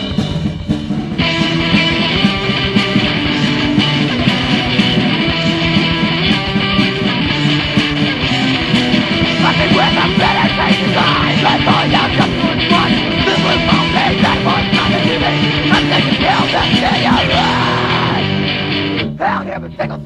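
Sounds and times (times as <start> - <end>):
distorted electric guitars: 0.0 - 20.0
drums: 0.0 - 20.0
shouted vocals: 9.4 - 18.4.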